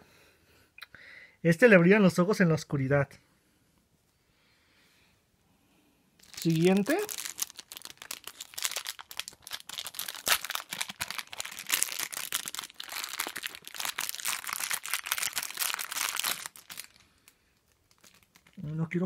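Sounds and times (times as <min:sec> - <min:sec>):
plastic sachet crinkling and tearing: 0:06.2 - 0:19.0.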